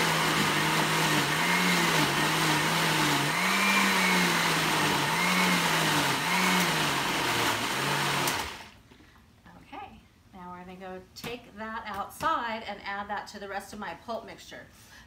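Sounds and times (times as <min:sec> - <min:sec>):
blender running: 0:00.0 - 0:08.8.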